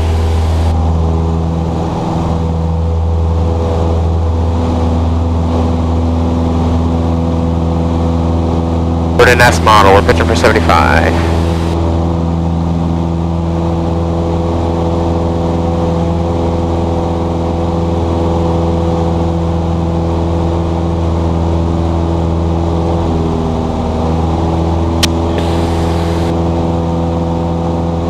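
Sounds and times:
airplane engine in cabin: 0:00.0 - 0:28.0
sharp click: 0:25.0 - 0:25.6.

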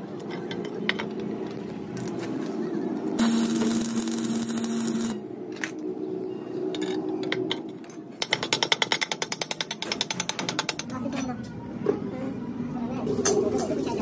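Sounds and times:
arc welding crackle and hum: 0:00.0 - 0:05.9.

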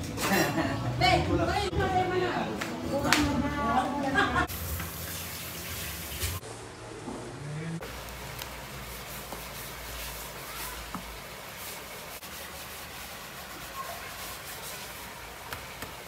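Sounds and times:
leaf rustling and scraping: 0:07.9 - 0:15.5.

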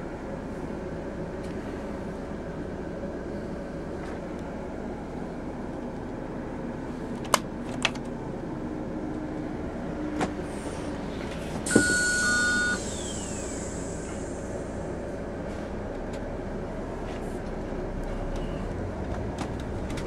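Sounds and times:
road and engine noise: 0:00.0 - 0:20.0
beep-like tones: 0:11.7 - 0:12.9
sudden hiss: 0:11.7 - 0:14.9.

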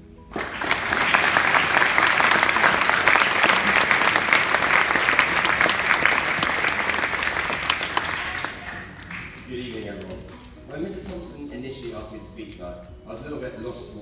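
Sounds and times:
audience applauding: 0:00.3 - 0:10.5.

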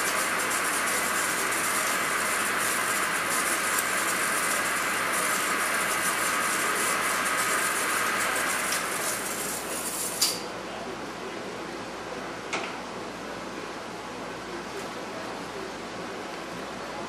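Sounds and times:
lathe whirring while cutting: 0:00.0 - 0:10.4.

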